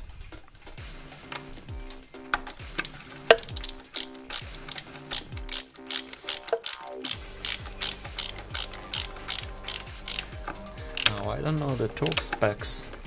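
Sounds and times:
hand ratchet clicking: 0:02.3 - 0:11.2.

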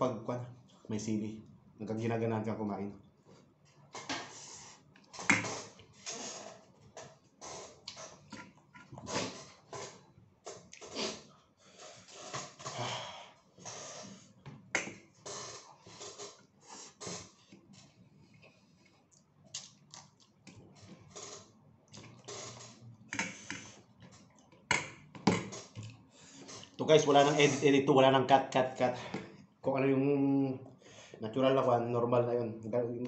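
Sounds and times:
man chewing and lip smacking: 0:06.8 - 0:11.2, 0:14.8 - 0:24.8, 0:25.5 - 0:26.8.

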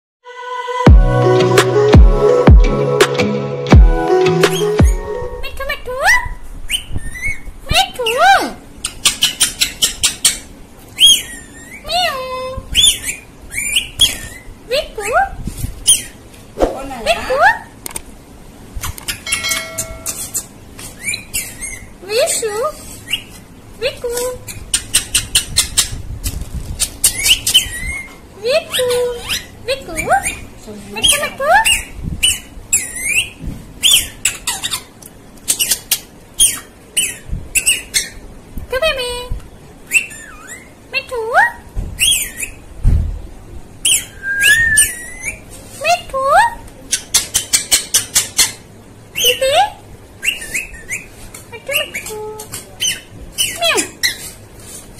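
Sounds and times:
parakeet squawking and chirping: 0:04.4 - 0:15.2, 0:15.8 - 0:16.3, 0:18.8 - 0:23.5, 0:24.4 - 0:26.0, 0:26.8 - 0:38.4, 0:39.8 - 0:40.9, 0:42.0 - 0:42.7, 0:43.8 - 0:45.5, 0:46.8 - 0:54.5.

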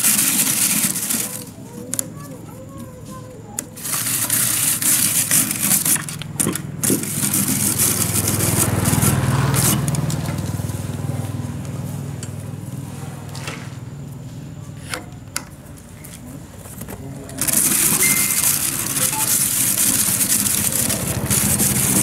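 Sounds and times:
scraping and crunching: 0:00.0 - 0:02.0, 0:03.7 - 0:10.8, 0:15.8 - 0:22.0
engine hum: 0:03.0 - 0:22.0.

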